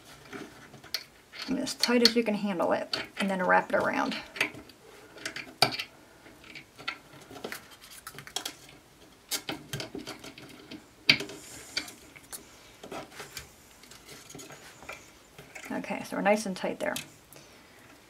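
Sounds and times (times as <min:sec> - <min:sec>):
wire clicking and scraping on hook: 0:00.8 - 0:07.2.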